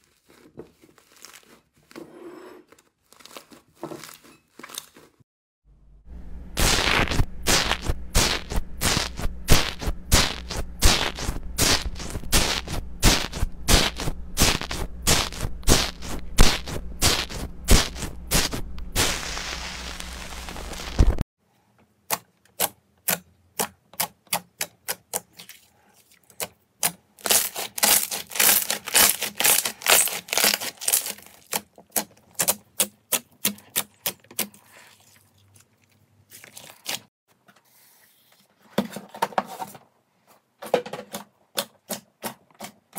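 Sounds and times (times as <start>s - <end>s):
foam slime crackling: 0.0s - 1.9s, 6.6s - 21.2s, 27.2s - 32.0s.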